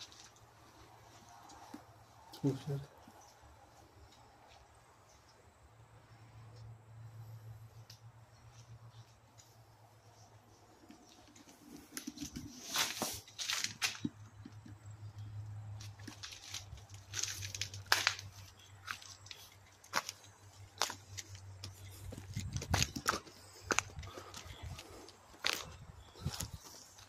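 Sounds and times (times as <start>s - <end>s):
footsteps crunching dry leaves: 12.0s - 14.1s, 15.8s - 27.0s.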